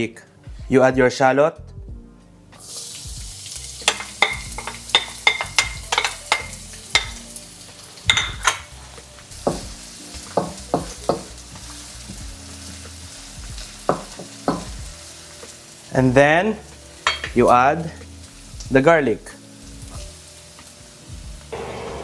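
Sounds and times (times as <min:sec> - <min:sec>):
shallots sizzling in hot oil: 0:02.6 - 0:22.0.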